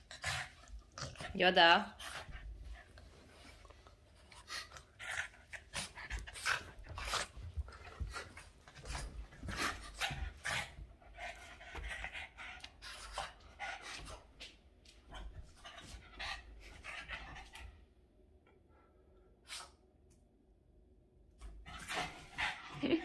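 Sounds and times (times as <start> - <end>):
dog panting: 0.0 - 14.4, 21.7 - 23.0.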